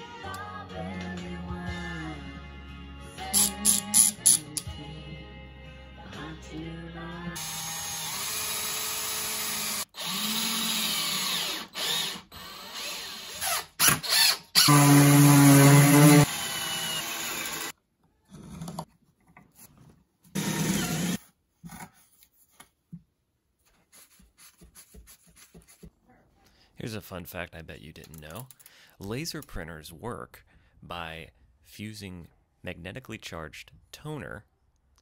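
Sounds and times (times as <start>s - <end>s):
power drill boring into wood: 7.4s - 17.7s, 20.4s - 21.2s.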